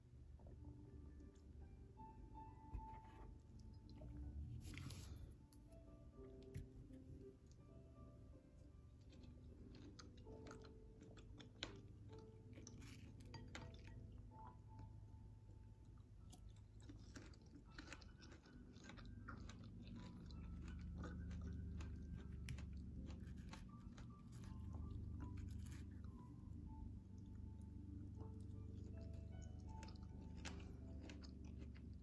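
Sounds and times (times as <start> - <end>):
chewing berries: 2.8 - 6.8, 8.9 - 32.0.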